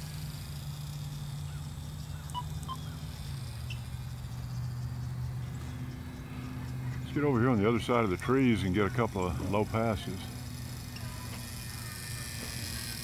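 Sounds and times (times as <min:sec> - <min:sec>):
model airplane motor drone: 0:00.0 - 0:13.0
faint bird chirps: 0:01.2 - 0:07.5.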